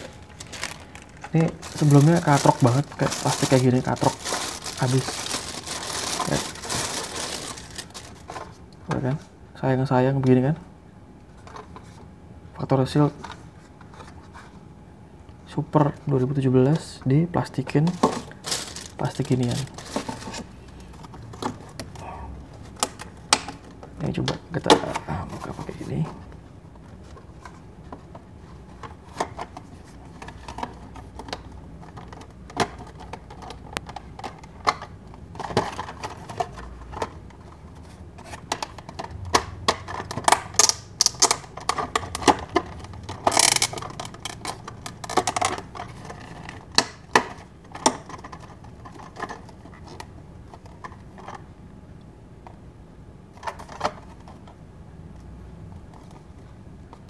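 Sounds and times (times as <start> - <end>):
plastic crinkling: 0.0 - 8.6, 17.8 - 21.0.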